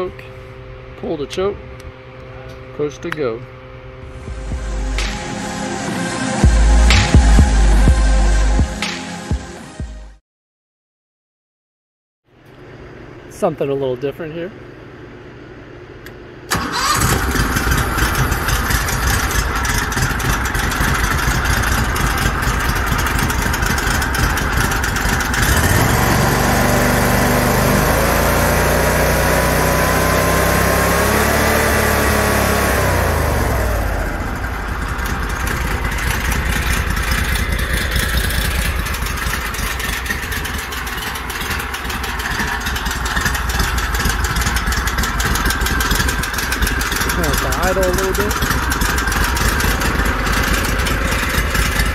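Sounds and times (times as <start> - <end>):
engine starting and revving: 16.5 - 51.9.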